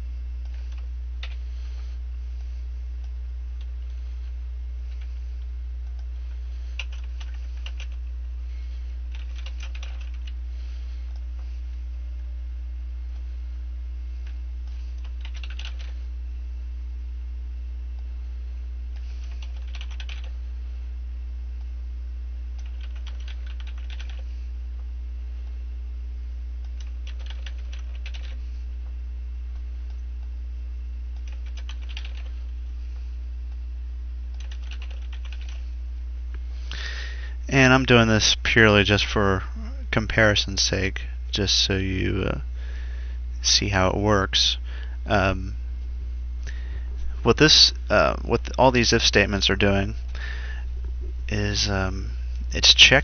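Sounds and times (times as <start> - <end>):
low electrical hum: 0.0 - 53.0
typing on keyboard: 6.8 - 8.0, 9.1 - 10.4, 15.0 - 15.9, 19.2 - 20.3, 22.6 - 24.2, 26.7 - 28.4, 31.2 - 32.3, 34.4 - 35.6.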